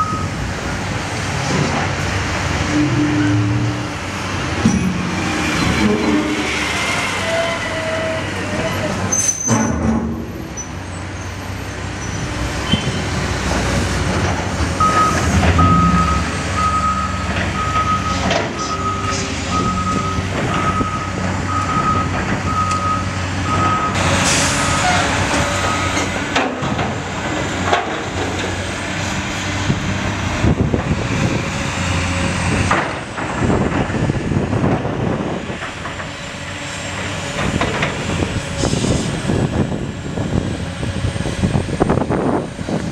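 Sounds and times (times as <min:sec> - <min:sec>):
diesel wheel loader running: 0:00.0 - 0:42.9
backup alarm beeping: 0:14.8 - 0:24.0.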